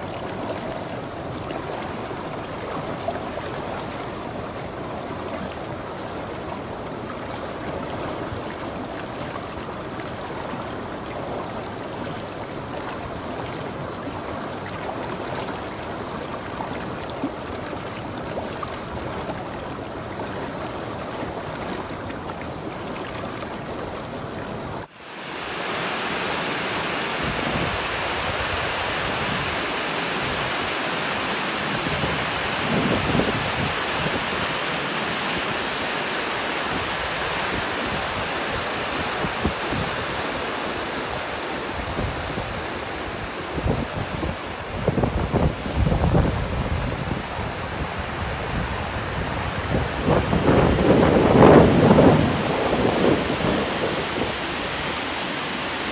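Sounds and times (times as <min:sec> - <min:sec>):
stream rushing over rocks: 0:00.0 - 0:55.9
waterfall pouring: 0:24.8 - 0:55.9.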